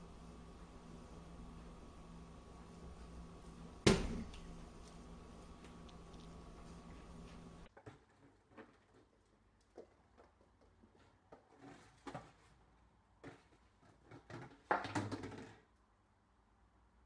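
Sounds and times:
plastic bottle rolling on wood floor: 13.2 - 15.7.

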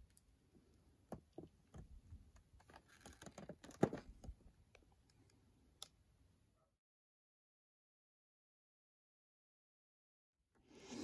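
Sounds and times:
plastic packaging clicks and crackles: 2.6 - 4.8.

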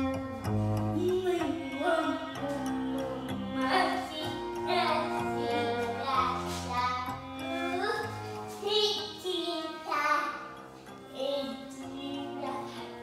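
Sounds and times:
music with singing voice: 0.0 - 13.0.

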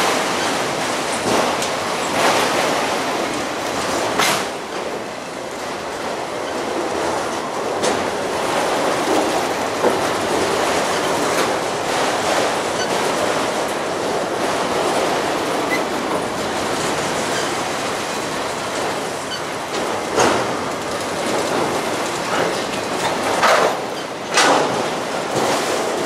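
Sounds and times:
train wheels clattering over rail joints: 0.0 - 26.0
high wheel squeaks: 12.6 - 13.2, 15.4 - 19.7.

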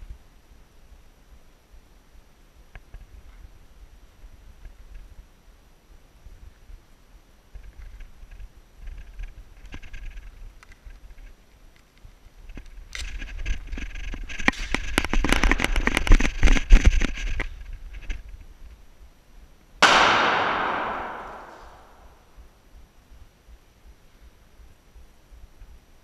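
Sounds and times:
airsoft gunfire bursts: 19.8 - 22.1
loud echoing bang: 19.8 - 22.3.

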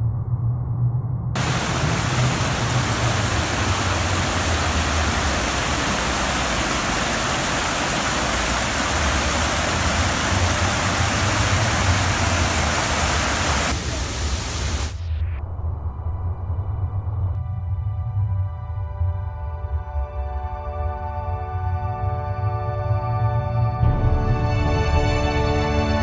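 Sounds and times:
waterfall and creek water rushing: 1.4 - 15.0.

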